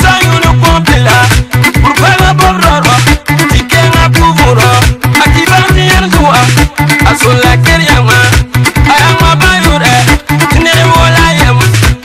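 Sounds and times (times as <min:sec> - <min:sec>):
bass line: 0:00.0 - 0:12.0
music with driving drum beat: 0:00.0 - 0:12.0.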